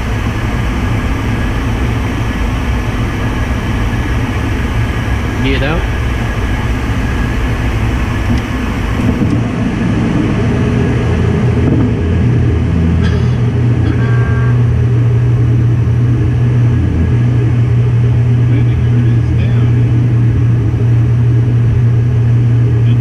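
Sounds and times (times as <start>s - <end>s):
aircraft engine and airflow drone: 0.0s - 23.0s
brief electronic tone: 13.8s - 14.8s.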